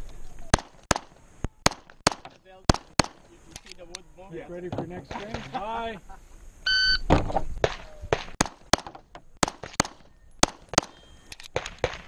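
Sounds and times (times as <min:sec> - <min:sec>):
pistol shots: 0:00.5 - 0:03.3, 0:07.6 - 0:12.0
shot timer beep: 0:06.7 - 0:07.0.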